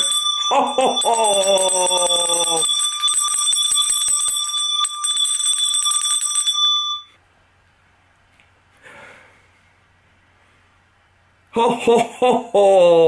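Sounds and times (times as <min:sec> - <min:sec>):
handbell ringing: 0:00.0 - 0:07.1.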